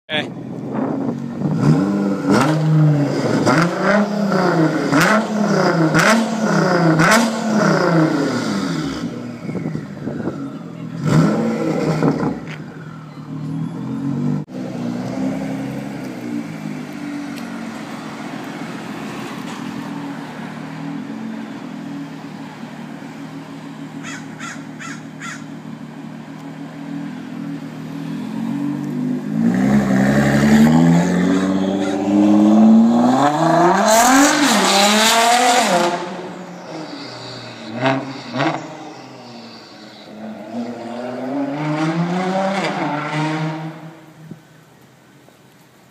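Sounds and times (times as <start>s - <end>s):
car accelerating hard: 28.1s - 38.8s, 40.2s - 44.1s.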